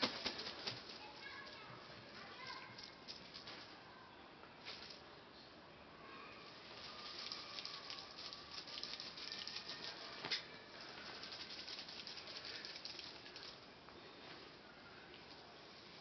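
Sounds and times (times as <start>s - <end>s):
dense rustling and crackling: 0.0s - 1.7s, 6.5s - 13.6s.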